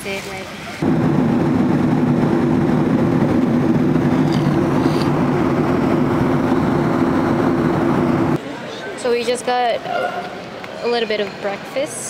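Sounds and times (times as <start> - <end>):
jet airliner cabin drone: 0.8 - 8.4
low hum: 0.8 - 8.4.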